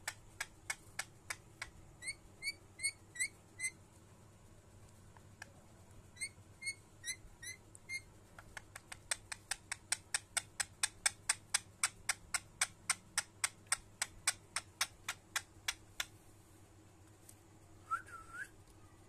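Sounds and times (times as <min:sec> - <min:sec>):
parakeet sharp clicks: 0:00.0 - 0:01.8, 0:08.4 - 0:16.2
parakeet chirping: 0:00.0 - 0:03.8, 0:06.1 - 0:09.8.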